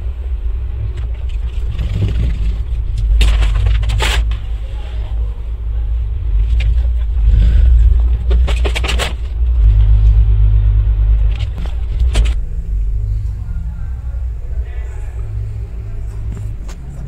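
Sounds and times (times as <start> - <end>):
engine rumble: 0.0 - 17.0
sharp clicks and knocks: 7.8 - 10.2, 11.2 - 12.4.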